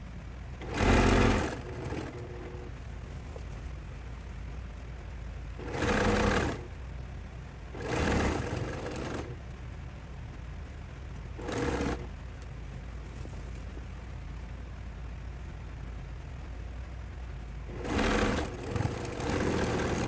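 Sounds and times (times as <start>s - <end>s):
low steady hum: 0.0s - 20.0s
sewing machine stitching: 0.6s - 2.8s, 5.6s - 6.7s, 7.7s - 9.4s, 11.4s - 12.1s, 17.7s - 20.0s.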